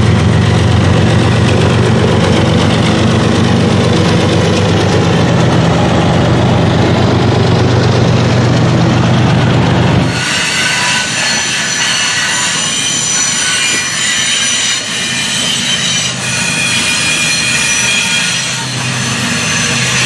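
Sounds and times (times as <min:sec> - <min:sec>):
low track rumble: 0:00.0 - 0:10.1
train wheels squealing on rails: 0:10.0 - 0:20.0.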